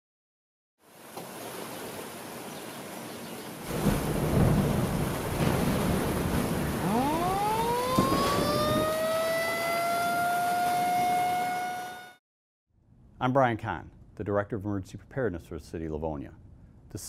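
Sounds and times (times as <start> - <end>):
rain hiss: 0.8 - 8.9
sharp crack of thunder: 3.7 - 9.0
thunder rumble: 3.7 - 10.2
warning siren wailing: 6.7 - 12.2.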